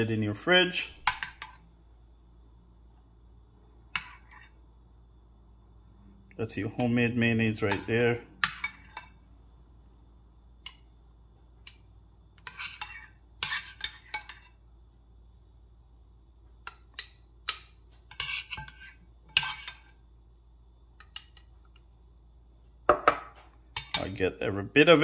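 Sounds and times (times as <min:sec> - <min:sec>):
metal spoon clinking on glass: 0:23.8 - 0:24.2.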